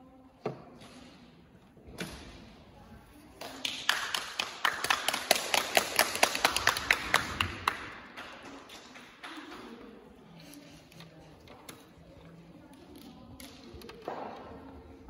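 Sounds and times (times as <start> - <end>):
people clapping: 3.4 - 9.5.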